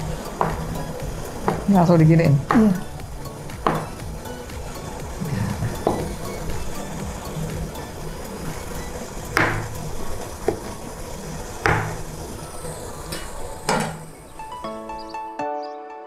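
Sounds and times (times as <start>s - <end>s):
steady low hiss: 0.0s - 15.2s
knife chopping on cutting board: 0.4s - 0.8s, 1.4s - 1.8s, 2.4s - 2.9s, 3.5s - 4.0s, 5.8s - 6.2s, 9.4s - 9.8s, 11.6s - 12.1s.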